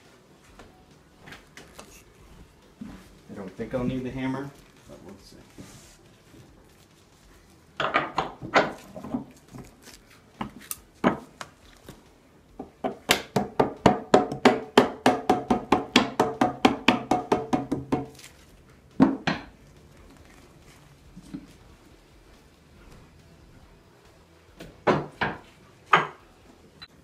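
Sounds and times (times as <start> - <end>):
hammer tapping wooden pin: 12.6 - 18.1.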